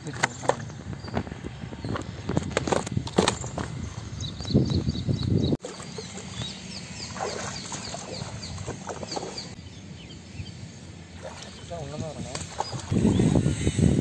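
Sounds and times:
small bird chirping: 3.3s - 10.6s
water sloshing: 5.6s - 9.6s, 11.1s - 13.2s.

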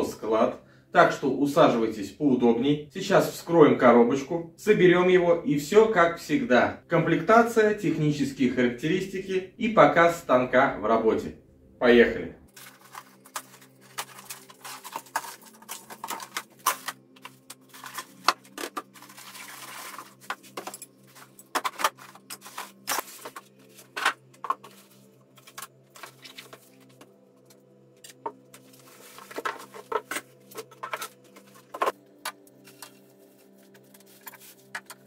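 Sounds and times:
plastic-wrapped parts rustling: 12.5s - 27.1s, 28.1s - 35.0s.

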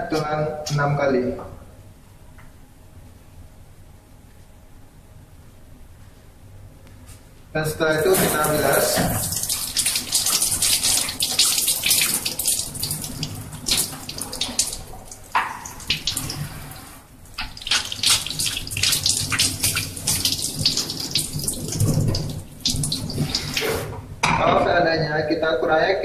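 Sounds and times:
hands rinsed under water: 8.0s - 23.7s
water running into a steel sink: 8.0s - 24.0s.

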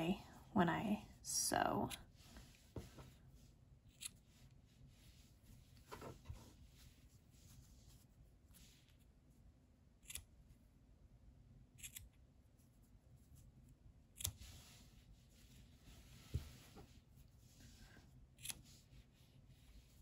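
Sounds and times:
scissors snipping yarn: 4.0s - 4.2s, 10.0s - 10.4s, 11.8s - 12.2s, 14.1s - 14.4s, 18.3s - 18.8s.

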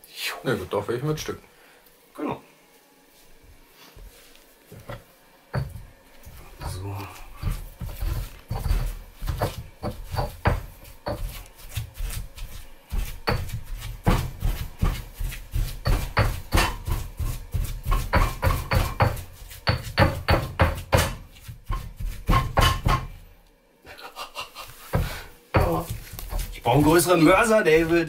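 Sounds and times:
stone pestle pounding in mortar: 5.5s - 23.1s, 24.9s - 28.0s.

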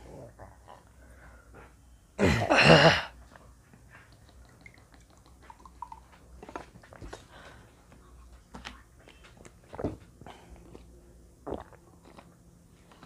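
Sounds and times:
man coughing harshly: 2.2s - 3.2s.

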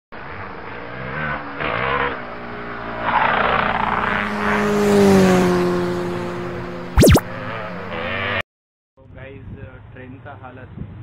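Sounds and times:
motorcycle engine revving: 1.0s - 8.4s.

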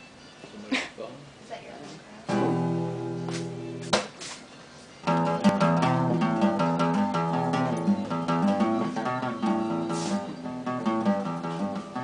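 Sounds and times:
acoustic guitar strumming: 2.3s - 4.1s, 5.0s - 12.0s.

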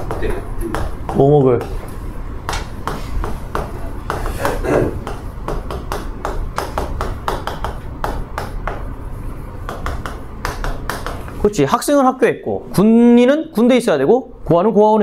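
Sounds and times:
chalk writing on a chalkboard: 0.0s - 8.9s, 9.6s - 11.6s.

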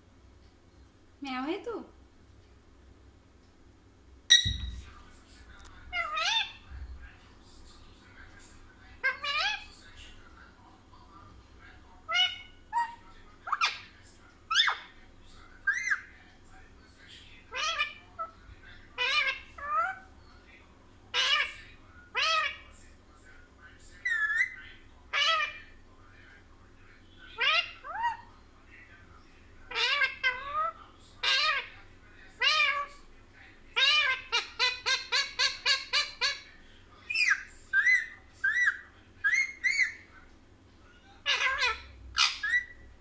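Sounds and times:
parakeet squawking: 4.3s - 4.8s, 5.9s - 6.7s, 9.0s - 9.9s, 12.0s - 15.0s, 15.6s - 16.1s, 17.4s - 20.2s, 21.1s - 22.8s, 24.0s - 25.8s, 27.2s - 28.3s, 29.7s - 33.1s, 33.7s - 36.5s, 37.1s - 40.1s, 40.9s - 42.9s.

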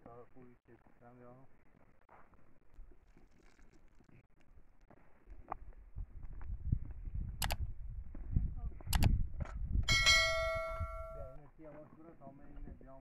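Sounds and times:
metal object clanging: 9.9s - 11.3s.

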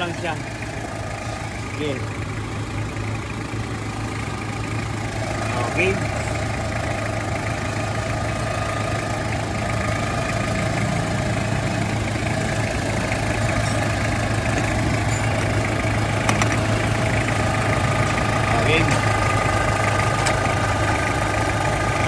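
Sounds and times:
air-conditioning compressor running: 0.0s - 22.0s
car engine idling: 0.0s - 22.0s.

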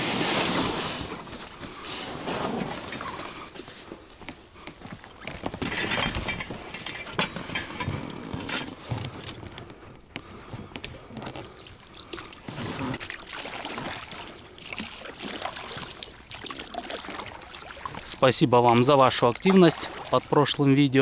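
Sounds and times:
oars splashing in water: 10.2s - 20.8s.

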